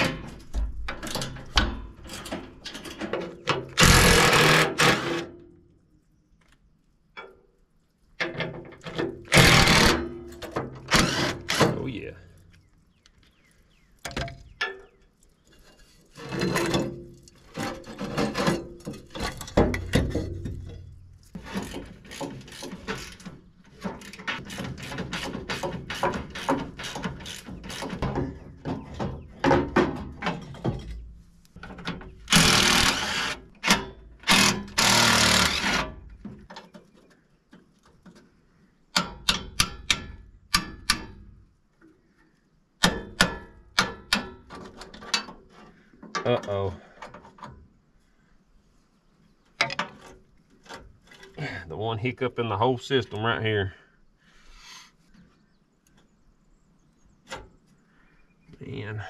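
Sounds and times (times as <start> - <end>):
metal rattling: 0.0 - 5.4, 8.2 - 12.4, 15.6 - 36.9
metal clanking and scraping: 0.0 - 5.5, 8.2 - 12.4, 14.0 - 37.0, 42.8 - 47.6, 49.6 - 51.6.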